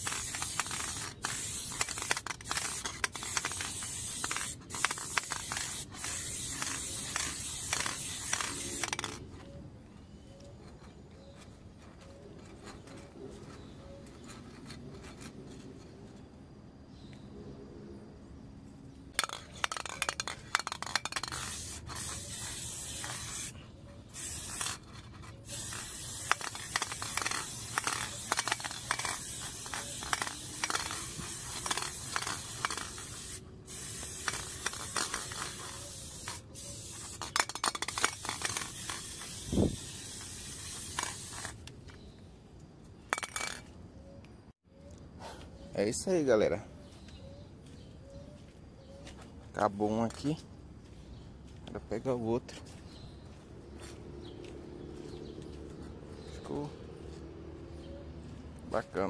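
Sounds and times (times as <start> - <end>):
spray-paint can hissing: 0.0 - 9.2, 19.2 - 41.6.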